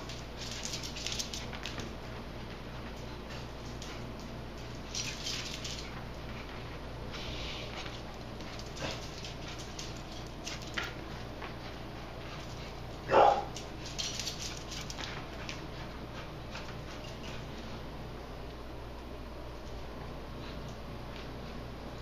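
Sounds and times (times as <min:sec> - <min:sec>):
paws clicking on tile floor: 0:00.0 - 0:18.6, 0:19.5 - 0:22.0
small dog barking: 0:13.1 - 0:13.6.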